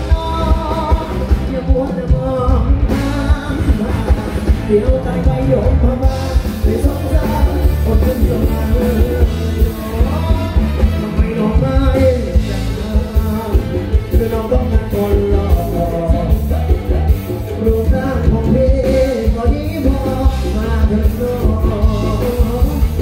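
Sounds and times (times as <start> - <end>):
bass guitar: 0.0 - 23.0
electric guitars: 0.0 - 23.0
male singer singing: 0.0 - 23.0.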